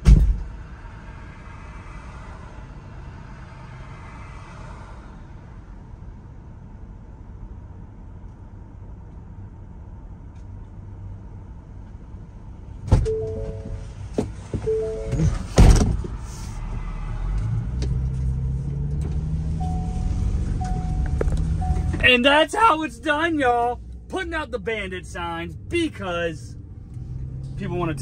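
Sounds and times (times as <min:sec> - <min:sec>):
car engine starting and running: 0:00.0 - 0:28.0
car door shutting: 0:12.9 - 0:16.2, 0:19.0 - 0:22.1
electronic chime tones: 0:13.1 - 0:13.8, 0:14.7 - 0:15.3, 0:19.6 - 0:22.0.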